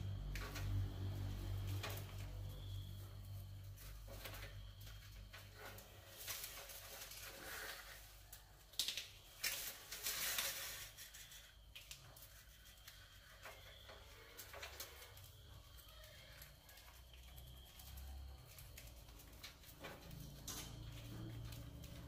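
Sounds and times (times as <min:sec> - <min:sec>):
rats scratching on wire cage: 0:00.0 - 0:22.0.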